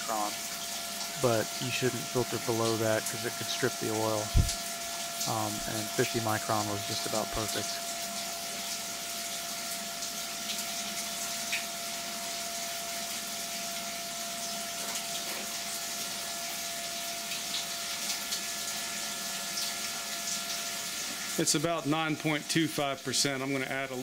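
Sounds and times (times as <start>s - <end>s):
coolant rushing and splashing: 0.0s - 24.0s
pump hum: 0.0s - 24.0s.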